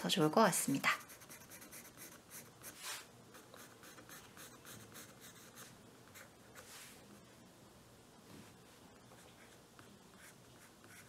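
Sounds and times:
pencil scratching on paper: 0:00.8 - 0:06.8, 0:09.2 - 0:11.0.

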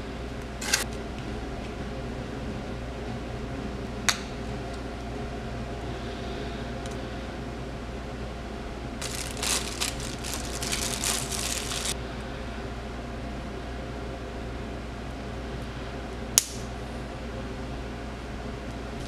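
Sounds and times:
plastic bag crinkling: 0:09.0 - 0:12.0.

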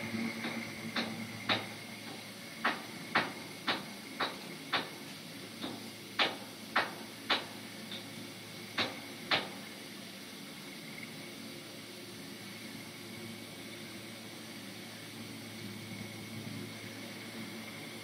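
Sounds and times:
faint hum: 0:07.6 - 0:18.0.

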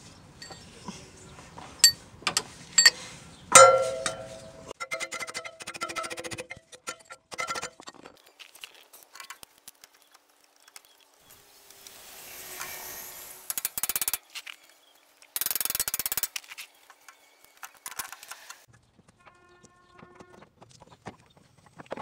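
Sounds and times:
rapid metallic clattering: 0:03.6 - 0:08.2.

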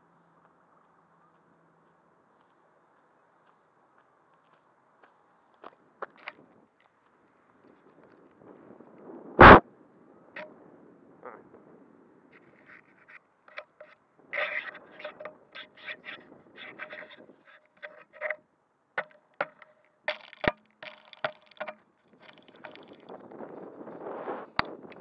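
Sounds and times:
camera handling clicks and scrapes: 0:12.6 - 0:18.4, 0:19.0 - 0:23.4.

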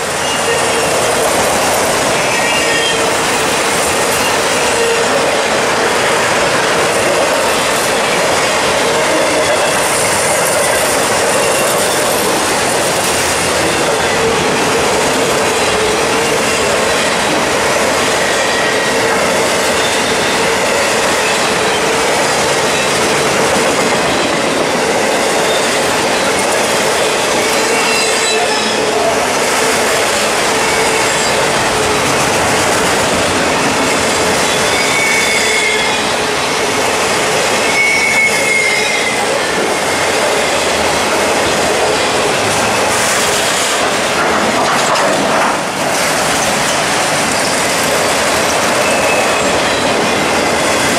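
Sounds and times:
rumble of steel wheels on rail: 0:00.0 - 0:50.9
high-pitched wheel squeals: 0:27.4 - 0:29.1, 0:34.4 - 0:36.2, 0:37.6 - 0:39.4, 0:48.8 - 0:50.2.

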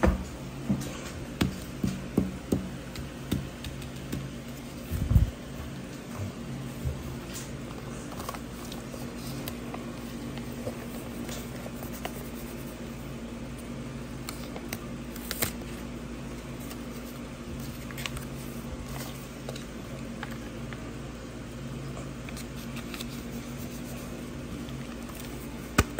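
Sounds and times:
steady low hum: 0:00.0 - 0:25.9
paper rustling and tapping: 0:01.4 - 0:04.8.

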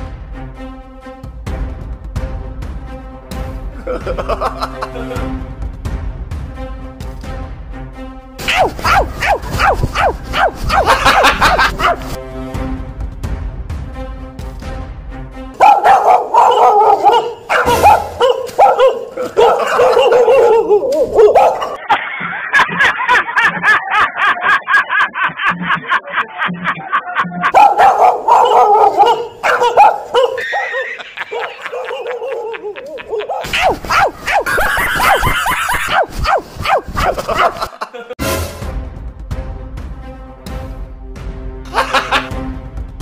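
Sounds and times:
recorded dog barking from speaker: 0:08.4 - 0:12.2, 0:15.6 - 0:21.8, 0:27.5 - 0:37.7.

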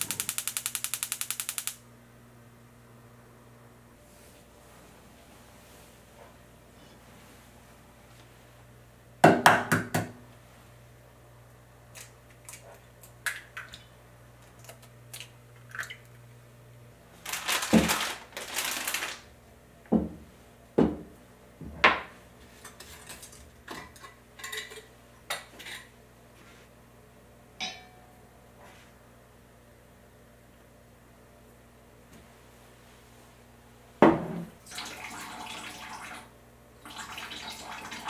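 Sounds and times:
pots and dishes clinking: 0:22.6 - 0:25.9, 0:27.6 - 0:28.2.

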